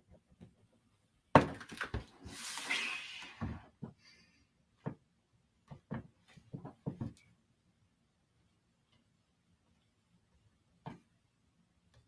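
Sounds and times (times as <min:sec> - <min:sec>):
paper rustling and sliding: 0:02.1 - 0:03.6.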